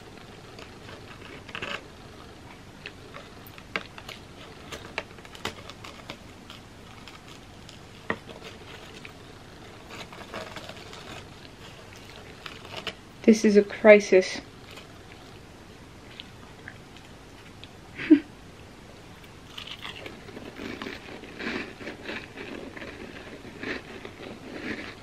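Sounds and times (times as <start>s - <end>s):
cracker scraping through brownie dip: 0.2s - 13.1s, 19.5s - 25.0s.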